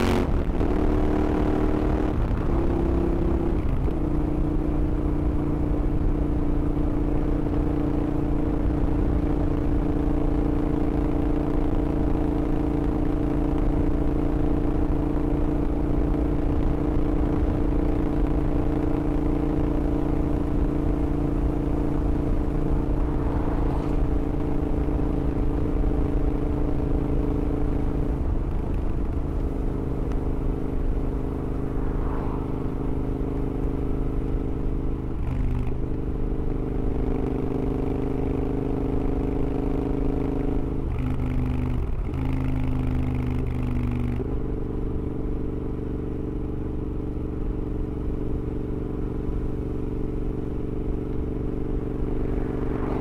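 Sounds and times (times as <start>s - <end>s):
motorcycle engine exhaust note: 18.4s - 34.9s, 40.6s - 53.0s.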